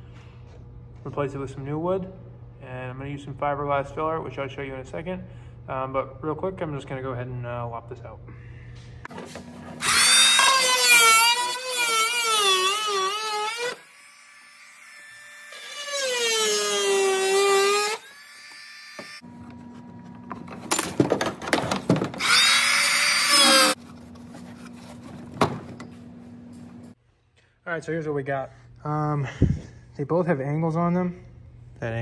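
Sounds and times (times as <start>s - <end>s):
multi-tool cutting wood: 9.4s - 19.4s, 22.2s - 23.9s.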